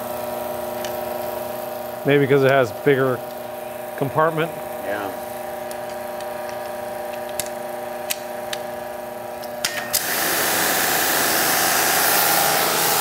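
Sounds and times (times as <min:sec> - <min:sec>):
pressure washer humming: 0:00.0 - 0:13.0
high-pressure water spray hiss: 0:10.0 - 0:13.0.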